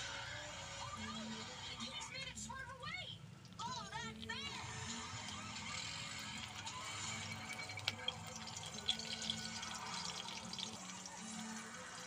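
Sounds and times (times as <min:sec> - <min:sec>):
oil popping: 0:03.4 - 0:12.0
fish sizzling in hot oil: 0:04.3 - 0:12.0.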